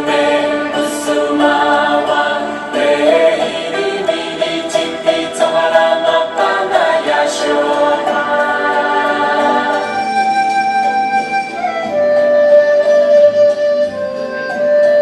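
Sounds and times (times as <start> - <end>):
choir singing long held notes: 0.0 - 11.8.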